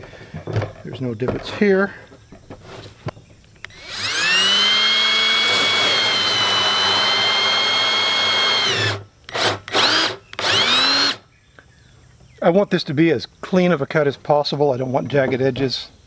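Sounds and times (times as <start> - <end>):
cordless drill with hole saw: 3.7 - 11.2.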